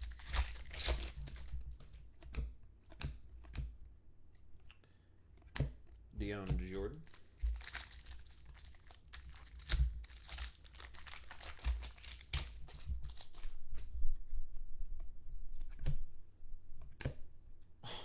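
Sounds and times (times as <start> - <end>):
foil wrapper tearing and crinkling: 0.0 - 1.6, 7.0 - 13.6.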